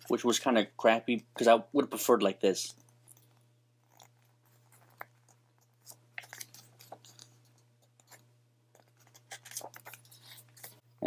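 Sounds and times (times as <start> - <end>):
magazine page crinkling: 5.0 - 10.8.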